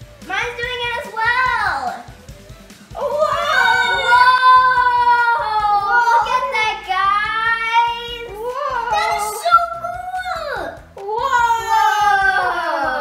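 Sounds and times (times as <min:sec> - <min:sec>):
girls' excited cries: 0:02.9 - 0:10.4, 0:11.0 - 0:13.0.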